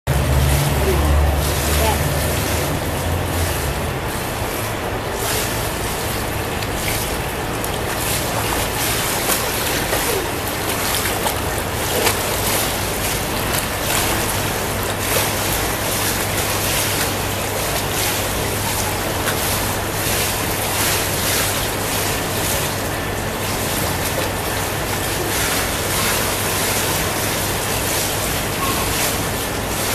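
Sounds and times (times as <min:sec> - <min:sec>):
low steady hum: 0:00.1 - 0:29.9
rush of pool water: 0:00.1 - 0:29.9
light splashing of swimming: 0:05.2 - 0:29.9.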